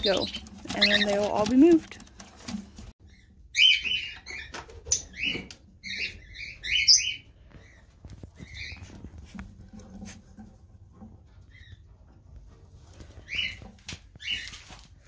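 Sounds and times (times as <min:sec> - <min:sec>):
parrots chirping: 0:00.0 - 0:01.8, 0:03.1 - 0:07.8.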